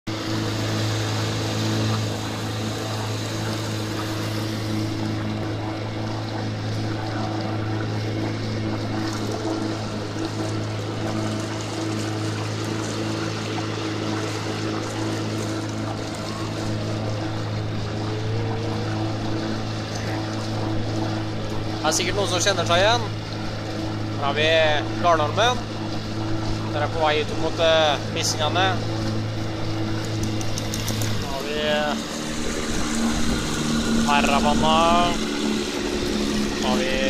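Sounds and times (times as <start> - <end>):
motorboat engine humming: 0.0 - 37.0
water and wind hiss: 0.1 - 37.0.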